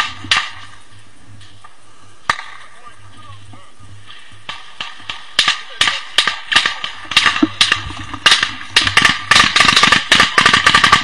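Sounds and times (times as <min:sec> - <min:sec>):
small-arms gunfire: 0:00.0 - 0:00.7, 0:02.3 - 0:02.6, 0:04.4 - 0:11.0.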